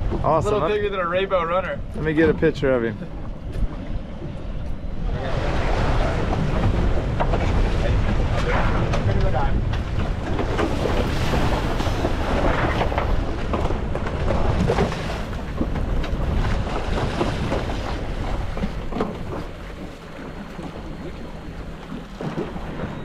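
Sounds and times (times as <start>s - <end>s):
wind buffeting microphone: 0.0s - 23.0s
seawater splashing: 5.0s - 23.0s.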